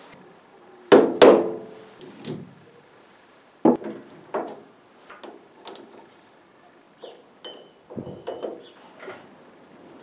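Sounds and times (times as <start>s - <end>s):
light metal clinks: 7.0s - 8.6s.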